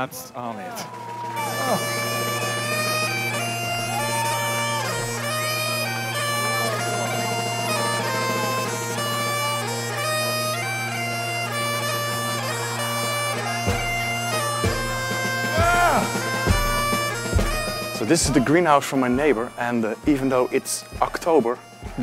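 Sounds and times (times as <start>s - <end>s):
bagpipe melody over drone: 0.4s - 22.0s
low thumps: 13.6s - 22.0s.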